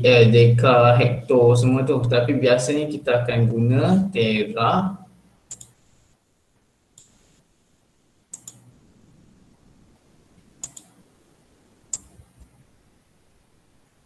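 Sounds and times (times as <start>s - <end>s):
computer mouse clicks: 5.5s - 5.8s, 8.3s - 8.7s, 10.4s - 11.0s, 11.9s - 12.6s.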